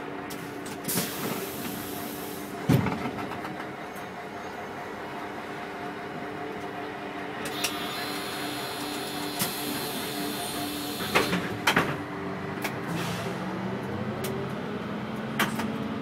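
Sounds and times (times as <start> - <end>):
bus engine idling: 0.0 - 16.0
pneumatic doors clunking shut: 0.3 - 3.5, 7.5 - 12.1, 12.8 - 13.5
air hissing: 0.9 - 2.6, 7.5 - 11.6.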